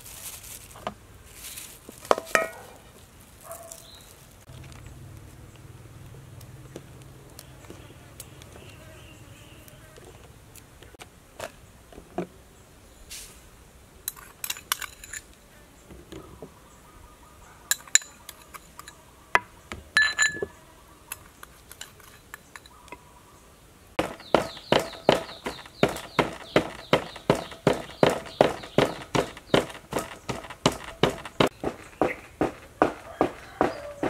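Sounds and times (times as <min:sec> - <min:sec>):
spoon clinking against mortar: 0:20.0 - 0:20.5
pestle pounding in mortar: 0:24.0 - 0:34.0.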